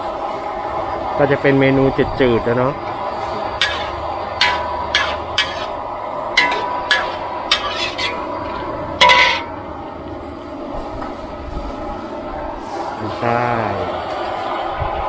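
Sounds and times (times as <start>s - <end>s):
metal ladle scraping a wok: 3.6s - 5.8s, 6.4s - 9.6s.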